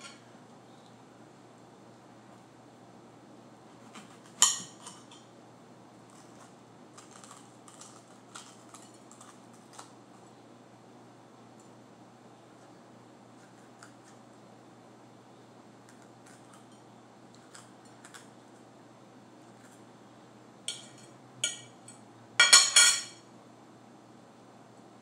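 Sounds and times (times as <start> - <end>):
knife clattering against plate: 4.0 - 5.2, 20.7 - 23.2
knife clinking on plate: 4.4 - 5.2, 20.7 - 23.2.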